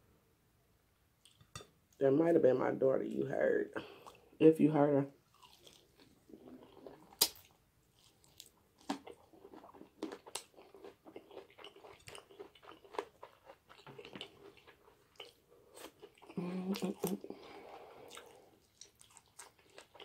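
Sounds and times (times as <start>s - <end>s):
wet chewing and lip smacks: 5.3s - 20.0s
sharp crunch: 7.1s - 9.2s.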